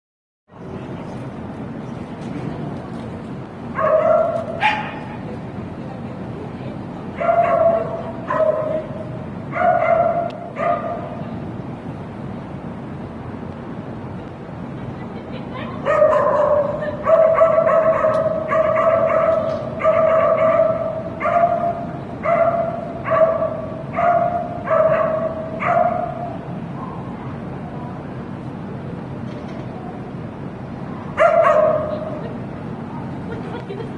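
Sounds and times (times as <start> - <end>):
dog barking: 3.8 - 5.2, 7.2 - 8.9, 9.5 - 11.2, 15.8 - 27.1, 31.2 - 32.1.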